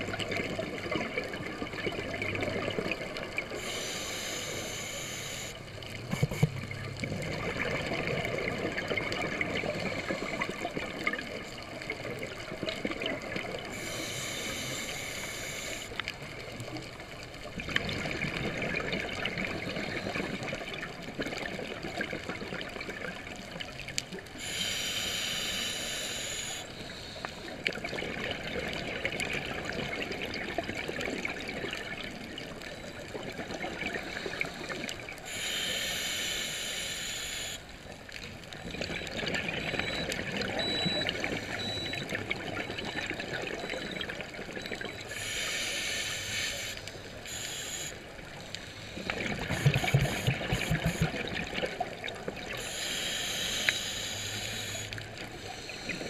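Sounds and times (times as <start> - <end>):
gurgling exhaled bubbles: 0.0 - 3.7, 6.0 - 13.8, 17.5 - 23.4, 38.6 - 45.1, 49.0 - 52.7
regulator hissing inhalations: 3.6 - 5.6, 13.7 - 16.0, 24.4 - 27.3, 35.3 - 37.6, 45.1 - 48.0, 52.6 - 56.0.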